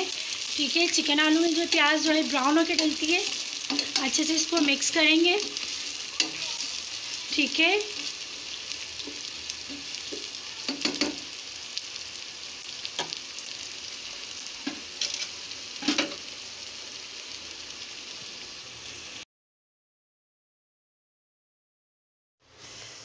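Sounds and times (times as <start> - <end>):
onions sizzling in hot oil: 0.0 - 19.2, 22.4 - 23.0
spoon scraping a pot: 3.6 - 4.7.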